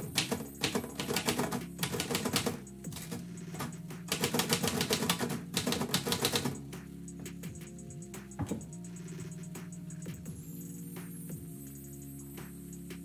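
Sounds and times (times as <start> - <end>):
typewriter keys clacking: 0.0 - 6.6.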